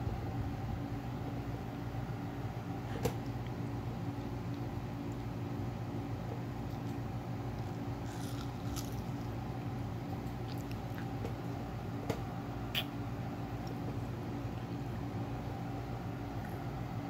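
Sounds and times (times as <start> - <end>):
steady low hum: 0.0 - 17.0
baby chewing wet mouth smacks: 10.4 - 11.3.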